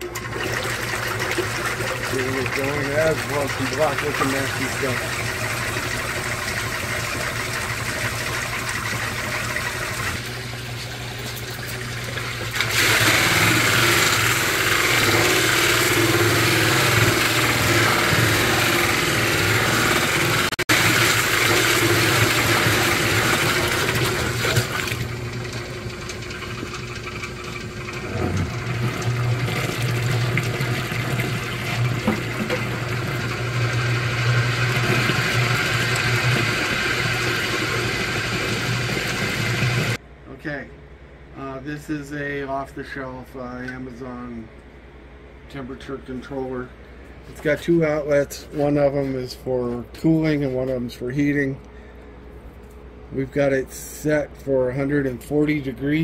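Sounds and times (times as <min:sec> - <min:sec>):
stirrer motor humming: 0:00.0 - 0:40.0
water pouring into barrel: 0:00.0 - 0:40.0.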